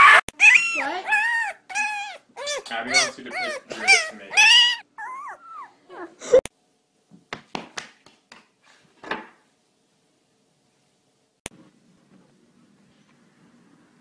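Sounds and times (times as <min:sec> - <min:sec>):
puppy whimpering: 0:00.0 - 0:06.4.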